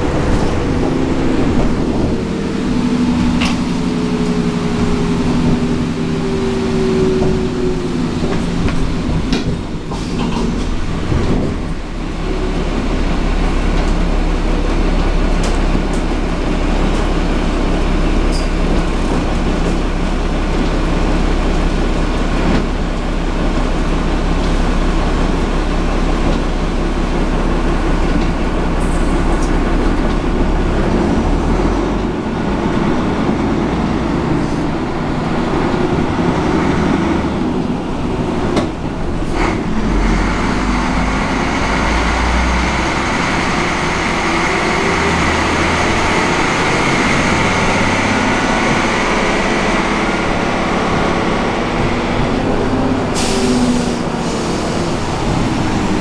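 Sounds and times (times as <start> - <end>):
bus diesel engine running: 0.0 - 56.0
road noise: 0.0 - 56.0.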